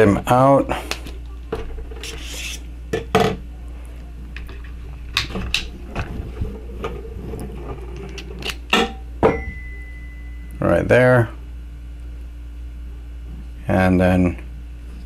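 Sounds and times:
low steady hum: 0.0 - 15.0
thin high tone: 9.2 - 11.0.

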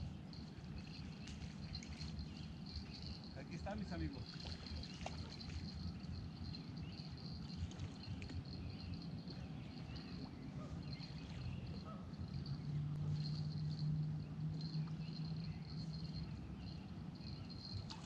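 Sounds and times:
low steady rumble: 0.0 - 18.0
faint bird chirps: 0.1 - 18.0
low hum: 4.2 - 18.0.

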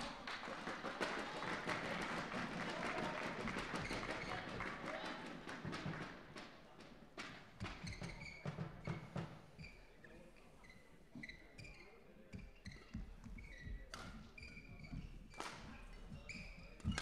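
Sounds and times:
shoes squeaking on floor: 3.7 - 4.6, 7.3 - 17.0.

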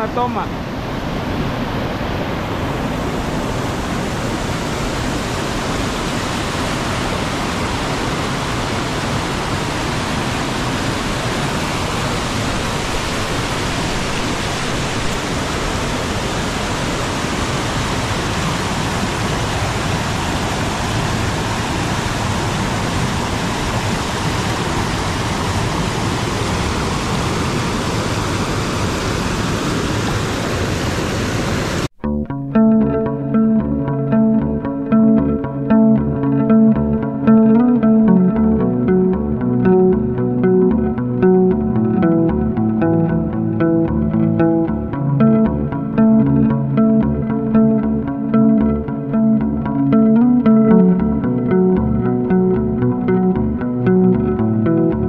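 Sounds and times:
waterfall rushing: 0.0 - 31.9.

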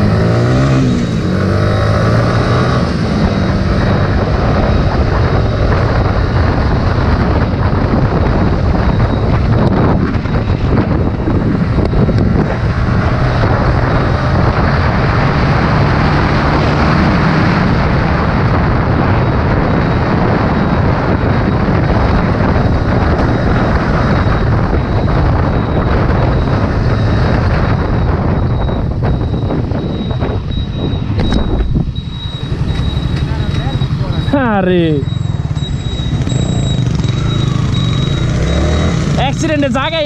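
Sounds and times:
motorcycle engine: 0.0 - 40.0
road noise: 0.0 - 40.0
wind buffeting microphone: 0.0 - 40.0.

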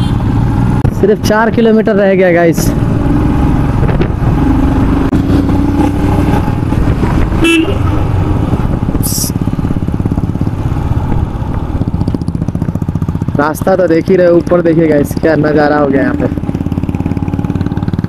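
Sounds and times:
horns honking: 0.0 - 0.3, 7.3 - 8.0
motorcycle engine running: 0.0 - 18.0.

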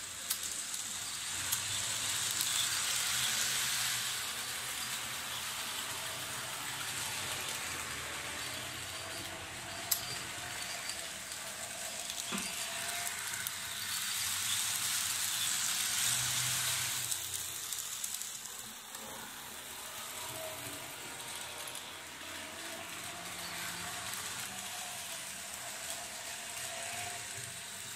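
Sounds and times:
model train motor whirring: 0.0 - 27.9.

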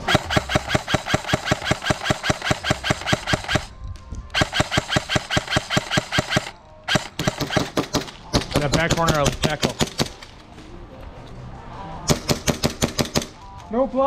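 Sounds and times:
airsoft rifle firing full auto: 0.0 - 3.7, 4.4 - 8.1.

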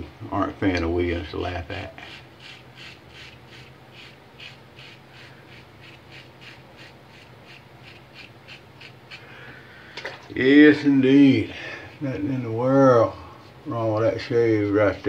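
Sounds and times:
razor scraping stubble: 2.0 - 9.3.

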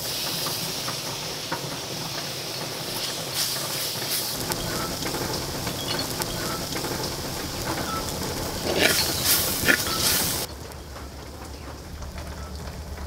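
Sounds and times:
food sizzling in a clay pot: 0.0 - 13.0
wooden spoon scraping a pot: 4.4 - 10.5.

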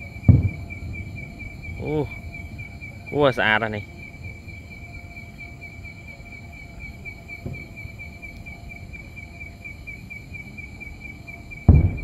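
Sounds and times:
cricket chirring: 0.0 - 12.0
low background rumble: 0.0 - 12.0
soft dull thump: 11.7 - 12.0.

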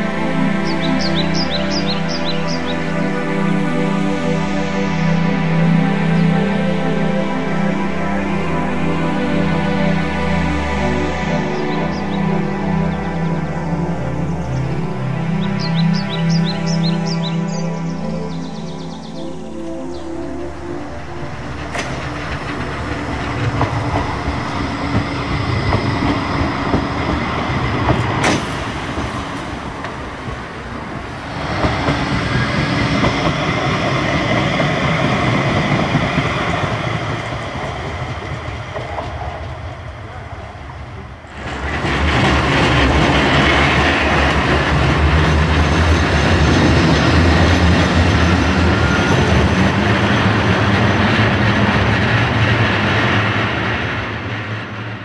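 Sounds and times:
tram wheels clattering on rails: 21.3 - 55.0.

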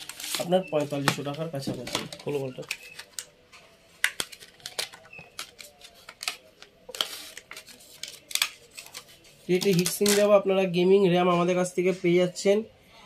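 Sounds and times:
plastic packaging rustling: 0.0 - 3.3, 4.0 - 10.3
plastic packaging clicking: 4.0 - 9.0, 9.6 - 10.3.

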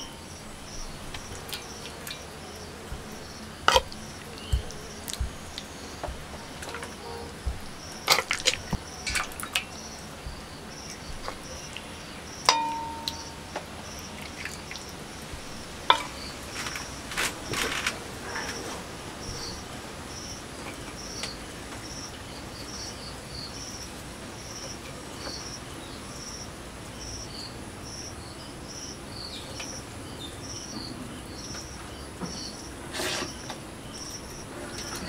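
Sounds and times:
crickets chirping: 0.0 - 35.0
steel ladle clinking on metal: 0.9 - 9.7, 12.5 - 13.6, 15.9 - 16.2.

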